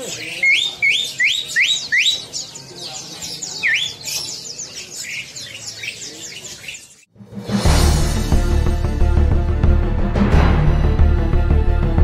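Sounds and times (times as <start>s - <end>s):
songbirds chattering: 0.0s - 7.1s.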